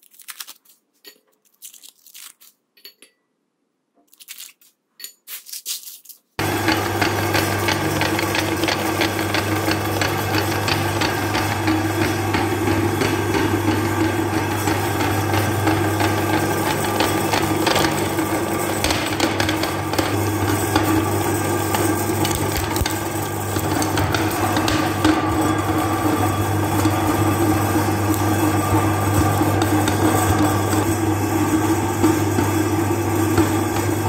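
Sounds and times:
candy cracking in grinder: 0:00.0 - 0:02.8, 0:04.1 - 0:34.0
meat grinder motor humming: 0:06.4 - 0:34.0.

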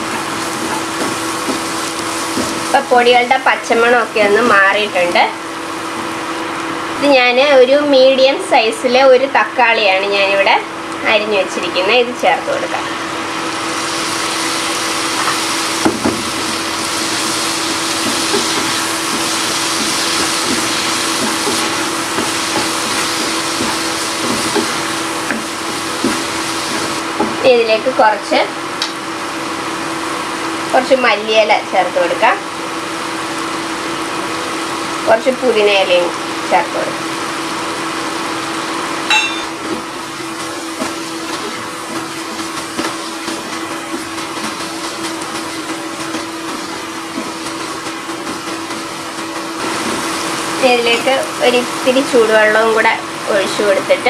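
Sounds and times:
food sizzling in hot oil: 0:00.0 - 0:07.2, 0:12.8 - 0:31.3, 0:32.1 - 0:54.0
steady hum and hiss: 0:00.0 - 0:54.0
ringing clink: 0:39.1 - 0:39.5.

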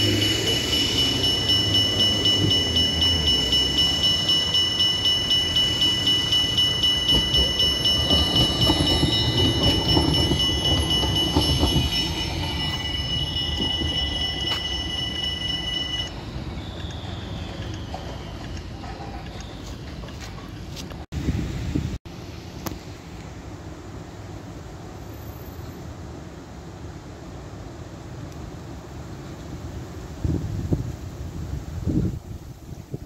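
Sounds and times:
level crossing bell ringing: 0:00.0 - 0:16.4
wheels clicking on rails: 0:00.0 - 0:21.1
tram rumbling past: 0:00.0 - 0:22.4.

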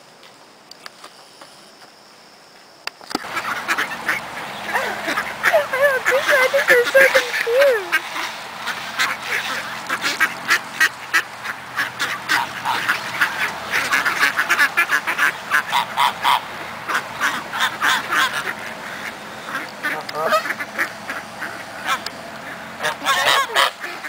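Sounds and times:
ducks quacking: 0:03.2 - 0:24.0
geese honking: 0:03.3 - 0:24.0.

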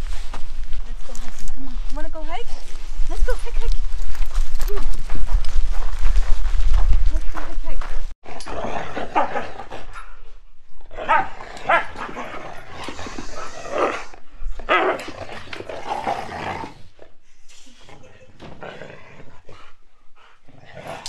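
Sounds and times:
dogs play-wrestling and vocalizing: 0:08.2 - 0:21.0.

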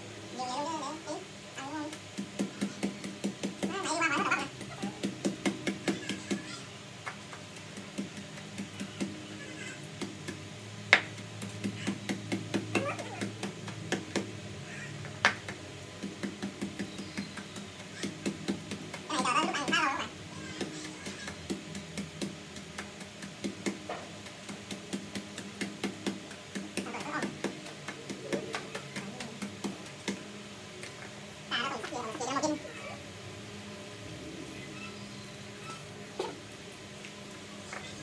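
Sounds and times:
wooden pestle pounding in mortar: 0:01.9 - 0:06.5, 0:11.0 - 0:14.3, 0:15.1 - 0:30.2.

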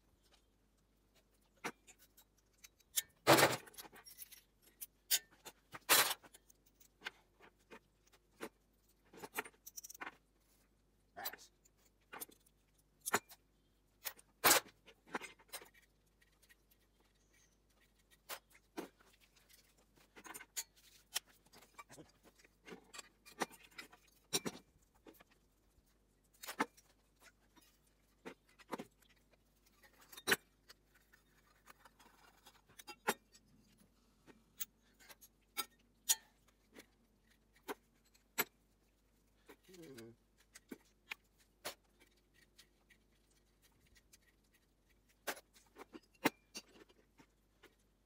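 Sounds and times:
metal parts and tools clinking on wood: 0:01.4 - 0:10.4, 0:11.2 - 0:25.4, 0:26.2 - 0:33.8, 0:34.5 - 0:38.7, 0:45.2 - 0:47.8.

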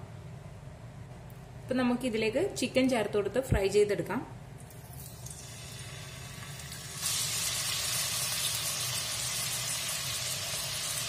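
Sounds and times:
chicken sizzling in hot oil: 0:05.2 - 0:11.0.

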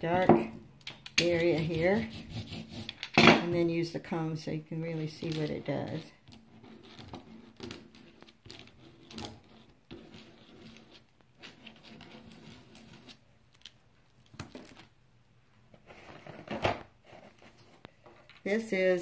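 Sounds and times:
comb scratching wet paint: 0:01.2 - 0:03.0, 0:04.9 - 0:13.3.

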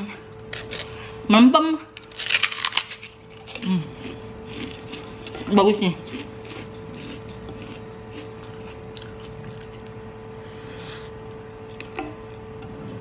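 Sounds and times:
steady low hum: 0:00.0 - 0:13.0
chewing: 0:02.4 - 0:10.4.

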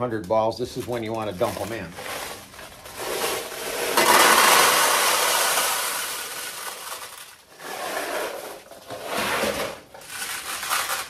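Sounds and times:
metal balls clattering: 0:00.7 - 0:07.7.

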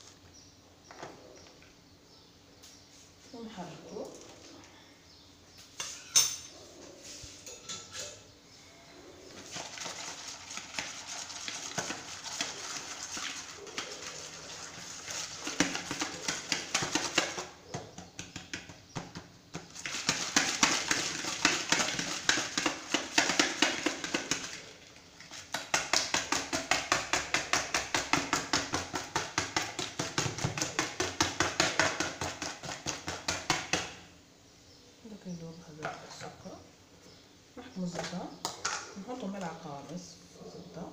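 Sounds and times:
whisk clicking against bowl: 0:25.5 - 0:33.9.

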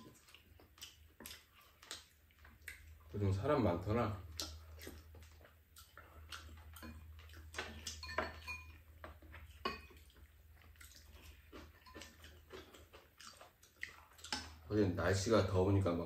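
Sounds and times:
spoon and chopsticks clinking bowls: 0:06.4 - 0:10.2, 0:11.1 - 0:12.7.

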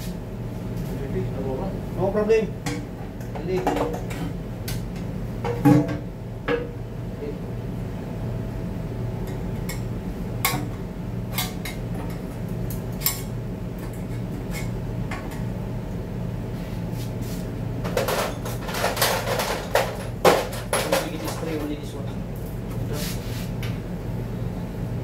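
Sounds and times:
steady low hum: 0:00.0 - 0:25.0
parts clattering on workbench: 0:17.8 - 0:21.6.

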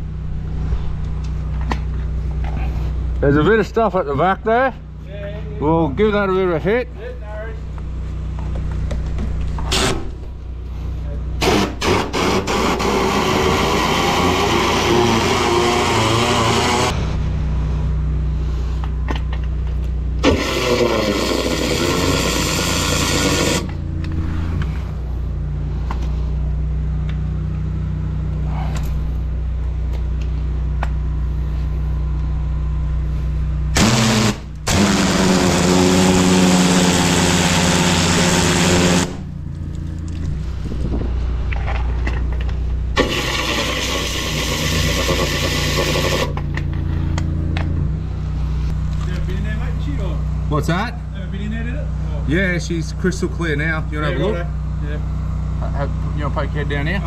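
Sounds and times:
hissing high-pressure water jet: 0:11.4 - 0:16.9, 0:20.2 - 0:23.7, 0:33.8 - 0:39.2, 0:43.0 - 0:46.4
drain jetter engine running: 0:19.2 - 0:24.8, 0:31.2 - 0:40.6, 0:41.5 - 0:47.2.

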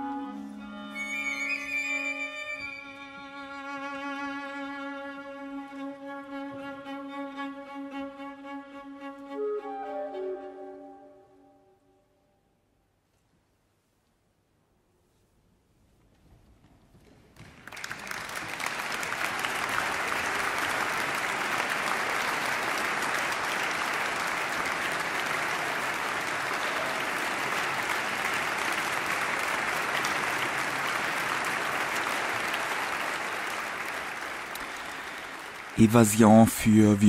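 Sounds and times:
audience applauding: 0:17.4 - 0:37.0.

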